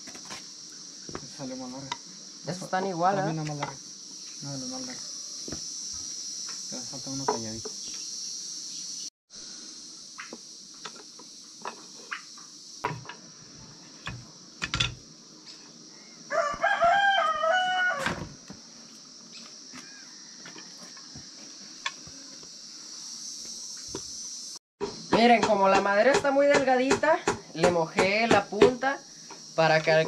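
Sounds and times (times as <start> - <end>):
high insect chirring: 0.0 - 30.0
light knocks of wood and tools: 1.1 - 2.1, 10.2 - 13.2, 18.0 - 22.6
rooster crowing: 4.9 - 5.6, 16.3 - 18.4, 19.8 - 21.0.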